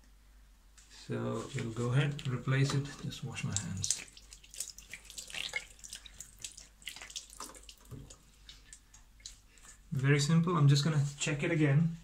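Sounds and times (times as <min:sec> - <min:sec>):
tap water splashing into sink: 0:03.4 - 0:09.4.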